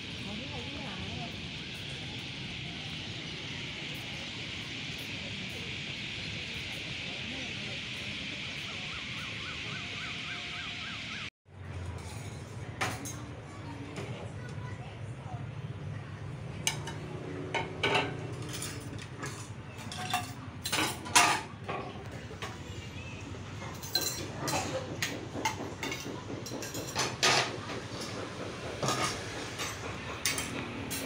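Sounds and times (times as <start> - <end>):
plates and cutlery clinking: 16.7 - 22.6, 23.7 - 28.2, 28.8 - 31.0.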